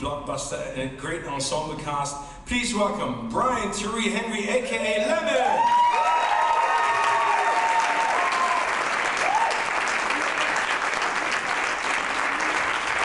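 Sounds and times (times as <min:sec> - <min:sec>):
short whoops: 0:05.5 - 0:09.6
audience applauding: 0:05.7 - 0:13.0.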